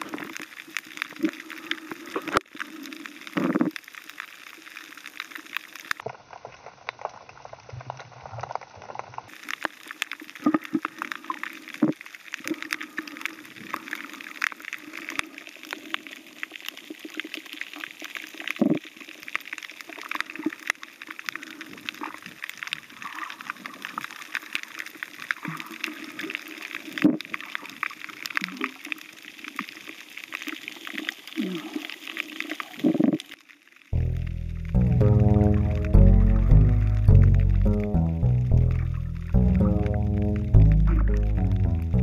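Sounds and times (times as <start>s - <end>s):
crackle of small clicks: 0.0s - 42.0s
muffled underwater water wash: 31.9s - 42.0s.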